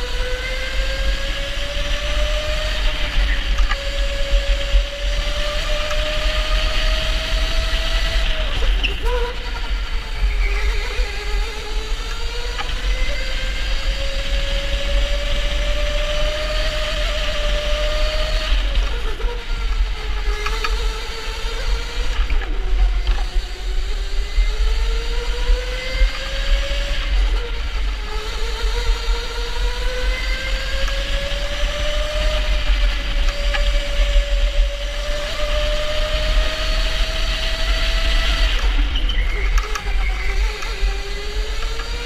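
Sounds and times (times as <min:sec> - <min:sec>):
electric go-kart motor whining: 0:00.0 - 0:42.0.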